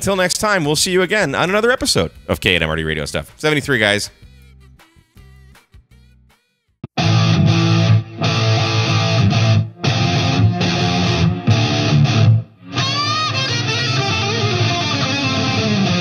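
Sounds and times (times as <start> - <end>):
guitar-led outro music: 6.9 - 16.0.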